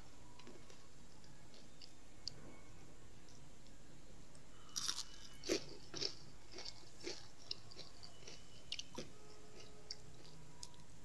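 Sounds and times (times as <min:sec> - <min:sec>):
crunchy chewing of fried food: 0:04.6 - 0:10.9.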